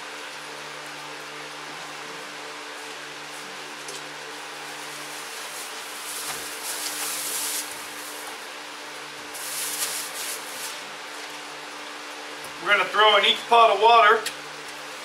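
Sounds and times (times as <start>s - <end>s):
plastic bag rustling: 4.5s - 8.5s, 9.3s - 10.9s.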